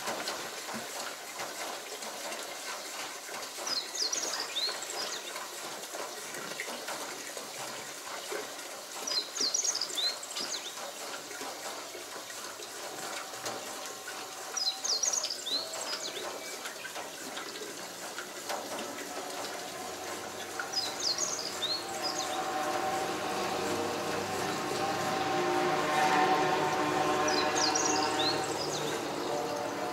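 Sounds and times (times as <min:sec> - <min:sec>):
fuel gushing from pump hose: 0:00.0 - 0:29.9
bird chirping: 0:20.7 - 0:22.5.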